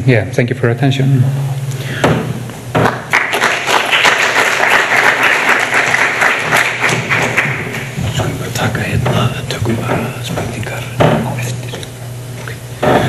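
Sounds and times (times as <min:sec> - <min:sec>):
audience applauding: 0:02.8 - 0:08.0.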